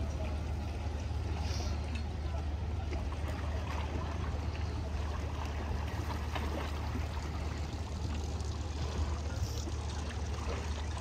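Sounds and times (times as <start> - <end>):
steady low rumble: 0.0 - 11.0
water splashing and trickling: 0.0 - 11.0.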